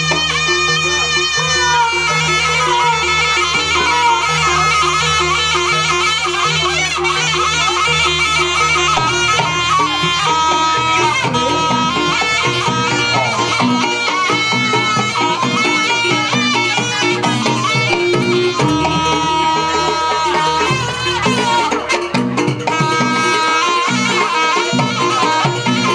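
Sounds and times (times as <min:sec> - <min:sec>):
drums and gongs beat: 0:00.0 - 0:25.9
shrill shawm melody: 0:00.0 - 0:25.9.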